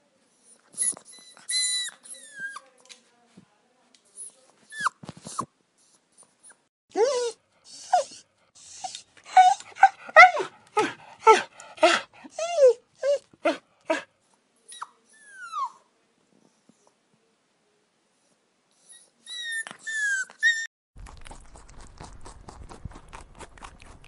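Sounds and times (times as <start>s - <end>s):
puppies whining and yelping: 7.0s - 10.5s, 18.8s - 20.7s.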